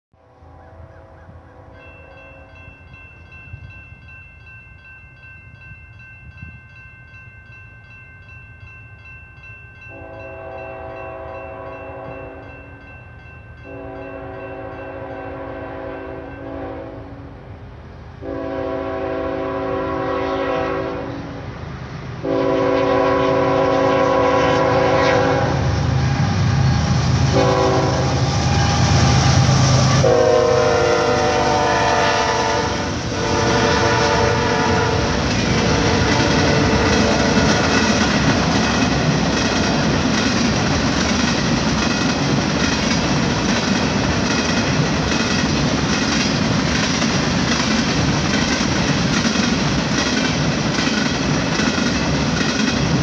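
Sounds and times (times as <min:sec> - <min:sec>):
locomotive air horn blasts: 0:00.2 - 0:02.6, 0:09.9 - 0:12.5, 0:13.7 - 0:17.3, 0:18.2 - 0:21.4, 0:22.2 - 0:37.8
freight train rumble and rail noise: 0:00.2 - 0:53.0.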